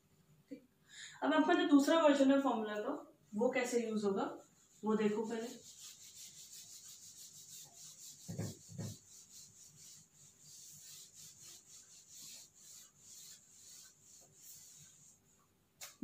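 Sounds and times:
duster wiping whiteboard: 3.7s - 15.5s.

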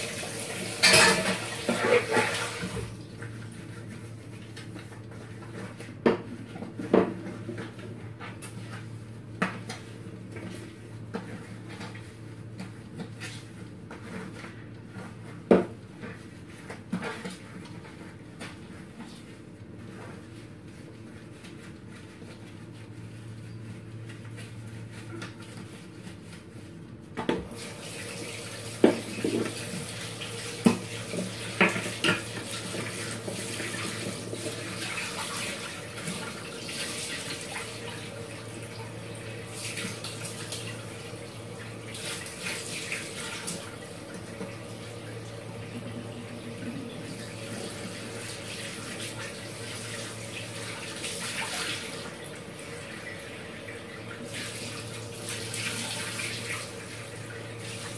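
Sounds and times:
tap water running into sink: 0.0s - 3.3s, 27.2s - 57.9s.

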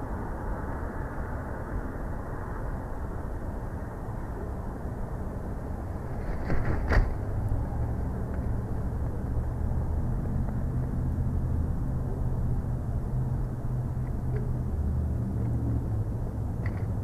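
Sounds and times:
steady low rumble: 0.0s - 17.0s
wing flaps: 6.0s - 7.3s
thump of bird landing: 6.2s - 7.1s.

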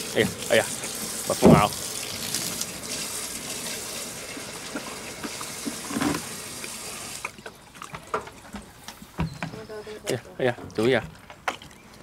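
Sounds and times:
water running from tap: 0.0s - 7.3s.

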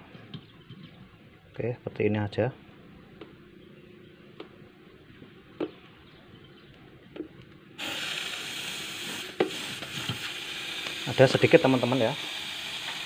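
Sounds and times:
refrigerant gas hissing: 7.8s - 13.0s.

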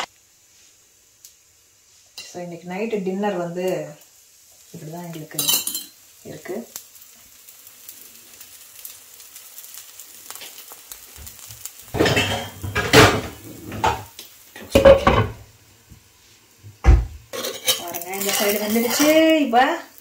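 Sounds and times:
batter sizzling on griddle: 0.0s - 20.0s
metal utensils scraping pan: 5.3s - 5.9s, 12.0s - 14.1s, 17.3s - 19.4s.

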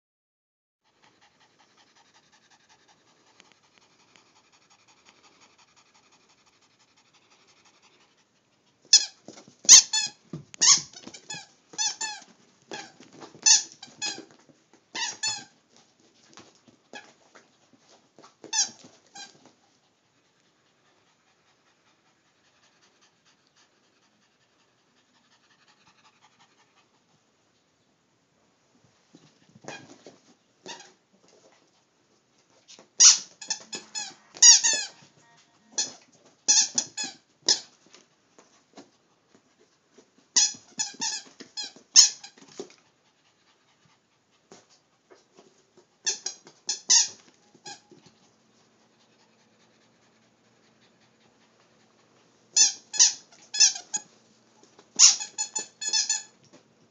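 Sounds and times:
squeaky toy squeaking: 8.9s - 14.3s, 14.9s - 15.5s, 18.5s - 19.4s, 33.0s - 37.7s, 40.4s - 42.4s, 46.0s - 48.0s, 52.6s - 54.1s, 55.0s - 56.3s.

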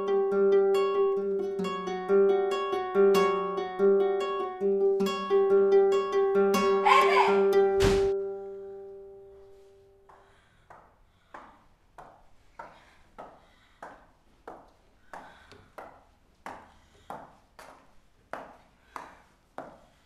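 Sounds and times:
hard-heeled footsteps on hard floor: 10.0s - 20.0s.

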